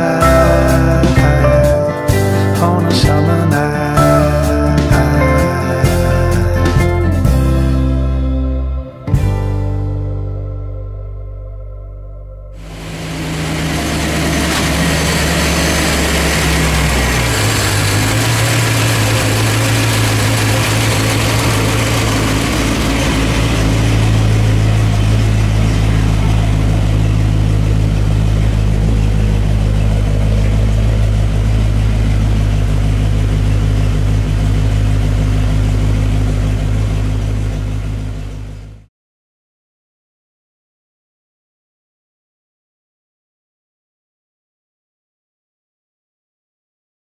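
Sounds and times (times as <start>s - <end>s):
car engine idling: 0.0s - 7.5s, 12.6s - 38.9s.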